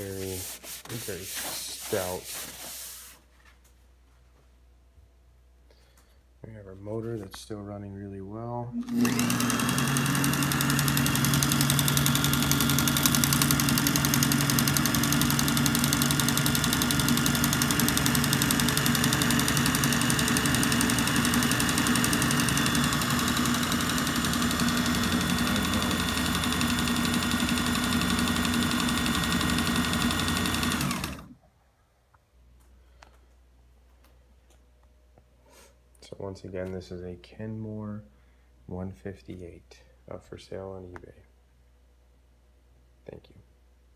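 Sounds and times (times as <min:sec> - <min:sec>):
sewing machine running: 0:08.7 - 0:31.4.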